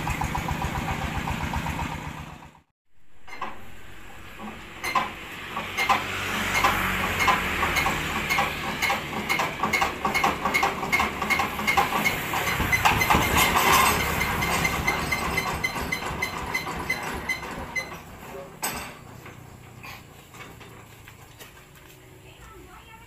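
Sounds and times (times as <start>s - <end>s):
diesel engine knocking: 0.0s - 2.7s, 4.1s - 18.2s.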